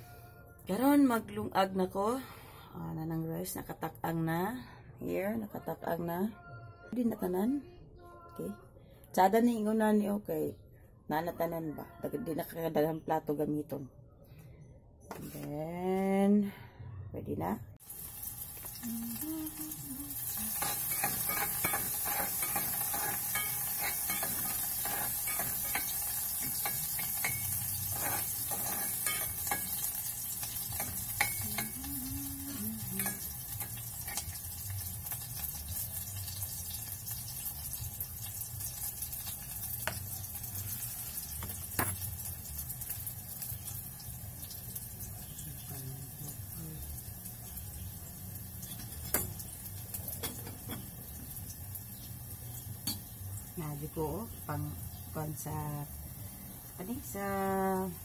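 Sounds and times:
meat sizzling in a pan: 0:17.8 - 0:58.0
utensil scraping a pan: 0:20.5 - 0:31.8.

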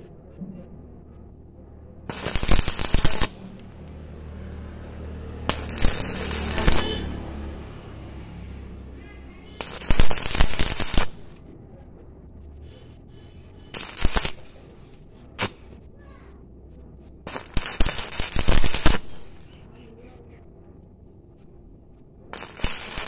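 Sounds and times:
welding arc pop: 0:02.1 - 0:03.8, 0:05.5 - 0:07.1, 0:09.6 - 0:11.4, 0:13.8 - 0:14.6, 0:15.4 - 0:15.7, 0:17.3 - 0:19.4, 0:22.4 - 0:23.0
welding arc crackling: 0:02.1 - 0:04.0, 0:05.3 - 0:08.9, 0:09.5 - 0:11.4, 0:13.7 - 0:15.7, 0:17.3 - 0:19.6, 0:22.3 - 0:23.0.

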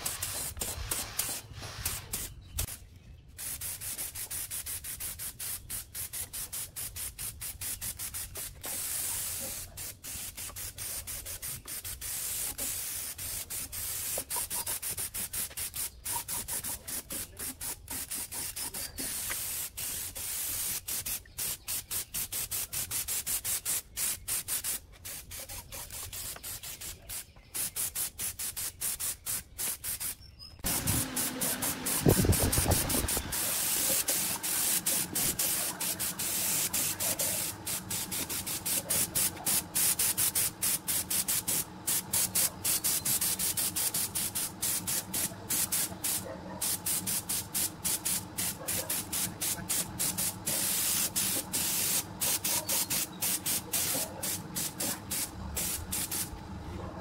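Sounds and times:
spray gun hissing bursts: 0:00.0 - 0:02.8, 0:03.4 - 0:56.4
low rumble hum: 0:30.6 - 0:48.6.

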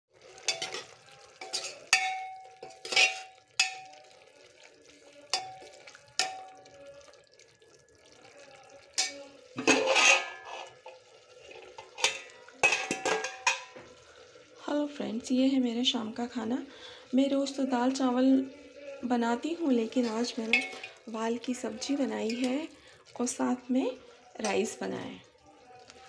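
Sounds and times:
metal utensil clanking on pots: 0:00.3 - 0:04.2, 0:05.3 - 0:06.7, 0:09.0 - 0:14.0, 0:19.8 - 0:22.7, 0:24.4 - 0:24.8.

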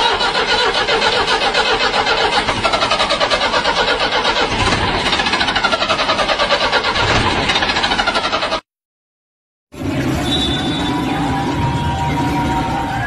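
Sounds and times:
rapid steady sputtering: 0:00.0 - 0:08.7.

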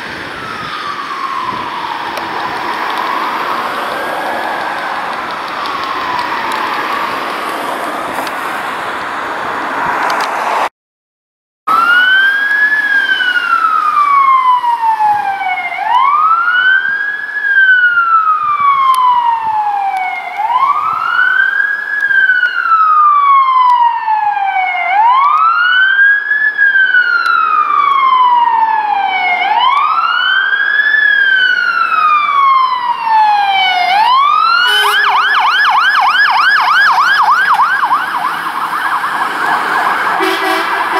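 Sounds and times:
fire engine siren wailing: 0:00.0 - 0:10.0, 0:11.7 - 0:40.9.

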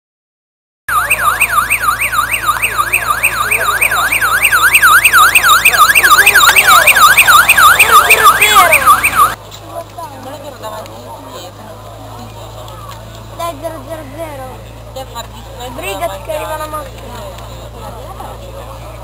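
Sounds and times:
electronic siren yelping: 0:00.9 - 0:09.4.

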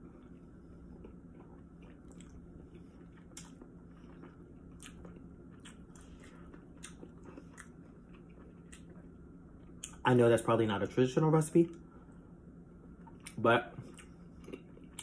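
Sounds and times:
person chewing wetly: 0:00.0 - 0:10.0, 0:13.0 - 0:15.0.

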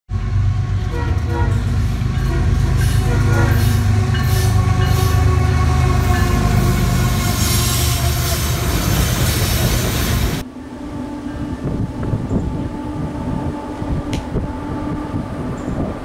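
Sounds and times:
diesel locomotive rumble: 0:00.1 - 0:10.4.

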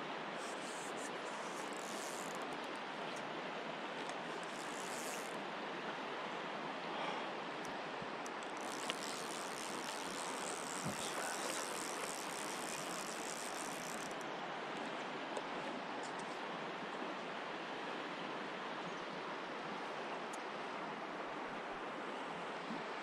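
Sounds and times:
creek water flowing over rocks: 0:00.0 - 0:15.9
faint clicks: 0:00.4 - 0:03.3, 0:04.0 - 0:05.4, 0:07.6 - 0:16.3.

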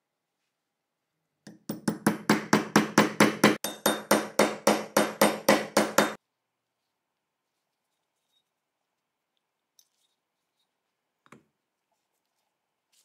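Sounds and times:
hammer tapping on metal punch: 0:01.5 - 0:06.2.

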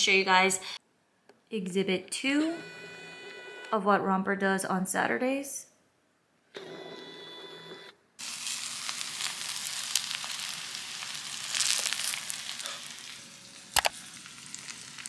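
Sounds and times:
rice sizzling and crackling: 0:08.2 - 0:15.0.

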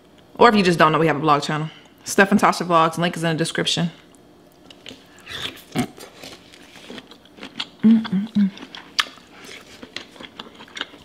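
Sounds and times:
wet chewing and lip-smacking: 0:04.1 - 0:11.0
person humming: 0:07.8 - 0:08.6.

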